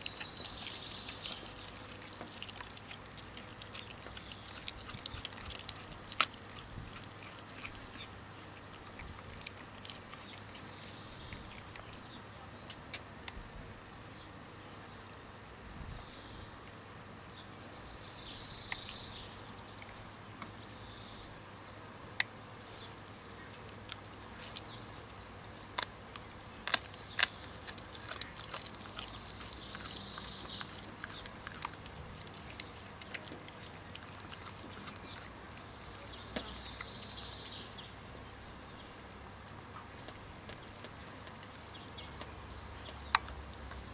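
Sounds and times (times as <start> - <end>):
dog chewing bone: 0.0 - 12.1, 23.5 - 35.7, 39.8 - 43.9.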